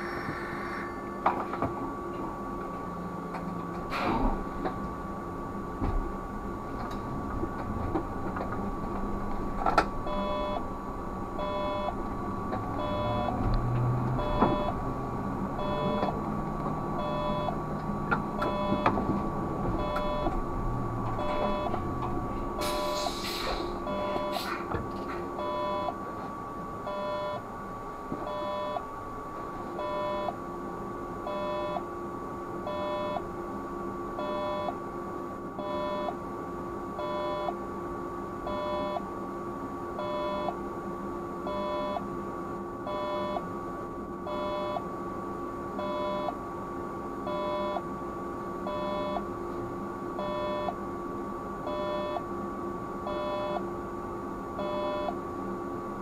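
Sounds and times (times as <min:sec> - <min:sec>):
electrical hum and whine: 0:00.0 - 0:56.0
two-note electronic warning beep: 0:10.1 - 0:10.6, 0:11.4 - 0:12.0, 0:12.8 - 0:13.4, 0:14.2 - 0:14.8, 0:15.6 - 0:16.1, 0:17.0 - 0:17.6, 0:18.4 - 0:18.9, 0:19.8 - 0:20.3, 0:21.2 - 0:21.8, 0:22.7 - 0:23.1, 0:23.9 - 0:24.4, 0:25.4 - 0:25.9, 0:26.9 - 0:27.4, 0:28.3 - 0:28.8, 0:29.8 - 0:30.4, 0:31.3 - 0:31.8, 0:32.7 - 0:33.2, 0:34.2 - 0:34.8, 0:35.6 - 0:36.2, 0:37.0 - 0:37.6, 0:38.5 - 0:39.0, 0:40.0 - 0:40.6, 0:41.5 - 0:42.0, 0:42.9 - 0:43.4, 0:44.3 - 0:44.8, 0:45.8 - 0:46.4, 0:47.3 - 0:47.8, 0:48.7 - 0:49.2, 0:50.2 - 0:50.8, 0:51.7 - 0:52.2, 0:53.1 - 0:53.6, 0:54.6 - 0:55.2.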